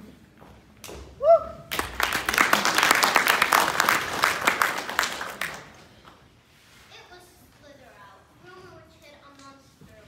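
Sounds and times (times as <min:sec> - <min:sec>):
person whooping: 0:01.2 - 0:01.7
audience clapping: 0:01.7 - 0:06.2.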